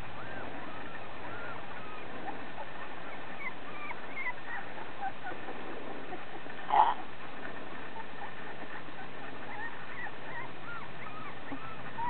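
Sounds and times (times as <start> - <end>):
puppies whimpering and squeaking: 0.0 - 12.0.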